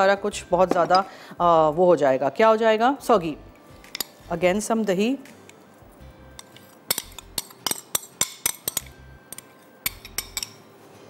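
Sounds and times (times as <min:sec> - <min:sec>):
spoon clinking against a bowl: 0:06.3 - 0:10.7.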